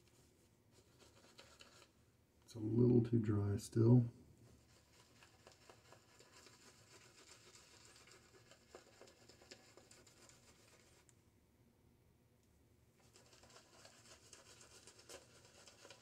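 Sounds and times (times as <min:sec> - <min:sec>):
shaving brush swishing on face: 0:13.1 - 0:16.0.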